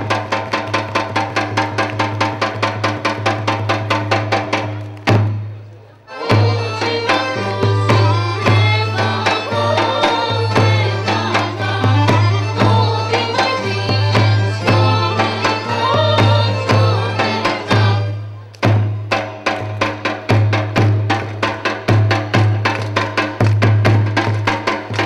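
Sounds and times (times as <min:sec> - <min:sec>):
lively folk melody: 0:00.0 - 0:25.0
steady drum beat: 0:06.1 - 0:25.0.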